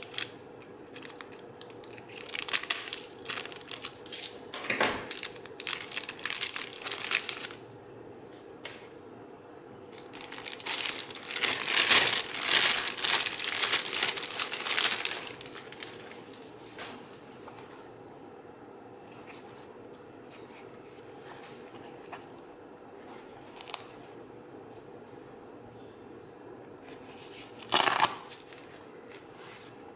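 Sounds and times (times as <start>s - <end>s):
plastic bag crinkling: 0.0s - 4.4s, 5.0s - 7.6s, 9.9s - 16.5s, 27.5s - 28.7s
faint handling sounds: 9.9s - 18.0s, 19.0s - 24.9s.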